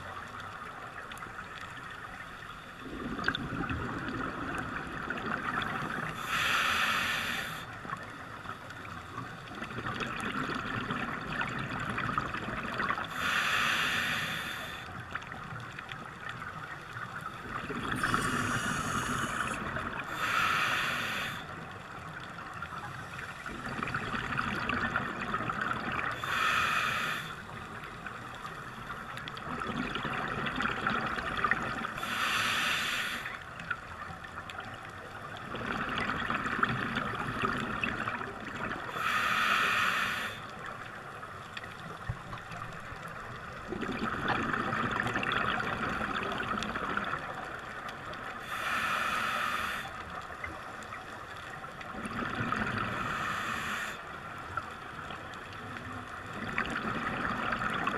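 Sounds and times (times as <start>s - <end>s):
underwater bubbling: 0.0s - 57.9s
regulator breath rush: 6.2s - 7.7s, 13.1s - 14.9s, 18.0s - 21.5s, 26.2s - 27.5s, 32.0s - 33.4s, 38.9s - 40.5s, 48.4s - 50.0s.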